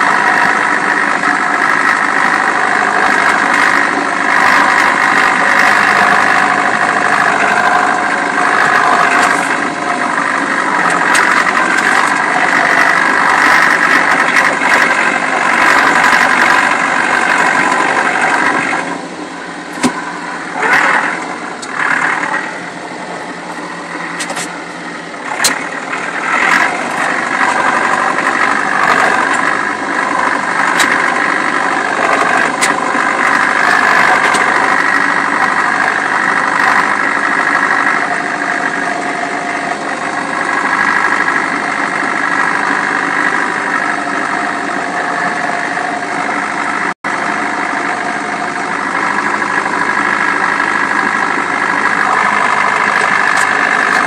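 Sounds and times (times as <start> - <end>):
sharp clicks and rattles: 0.0 - 18.9, 19.7 - 22.6, 24.0 - 24.6, 25.2 - 38.9, 49.0 - 54.0
tractor engine running: 0.0 - 54.0.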